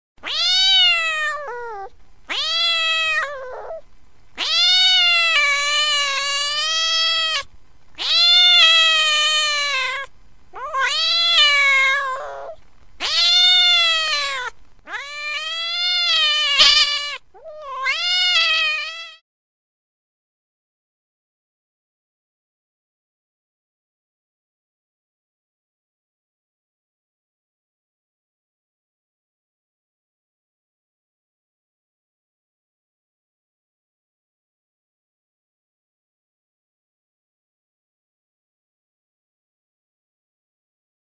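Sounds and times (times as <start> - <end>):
cat meowing: 0.2 - 3.8, 4.4 - 19.2.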